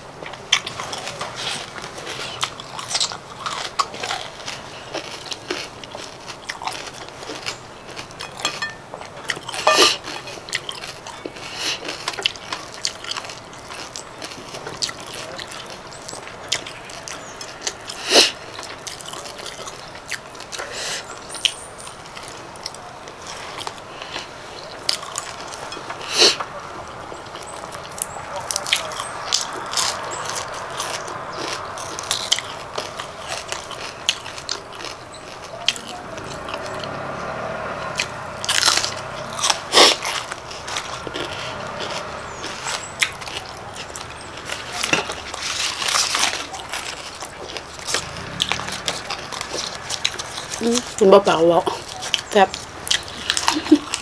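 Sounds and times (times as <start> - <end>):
chewing raw vegetables: 0.2 - 54.0.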